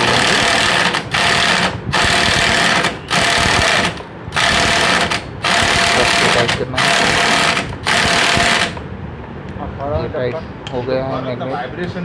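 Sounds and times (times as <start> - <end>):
impact wrench hammering: 0.0 - 8.8.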